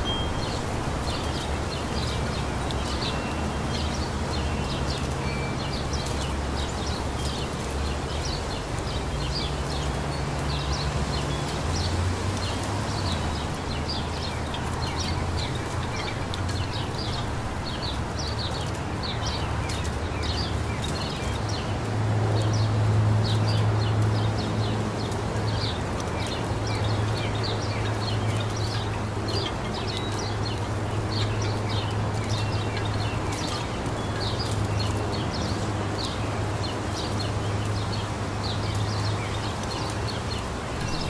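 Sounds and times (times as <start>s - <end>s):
breeze rustling through trees: 0.0s - 41.0s
small birds chirping: 0.0s - 41.0s.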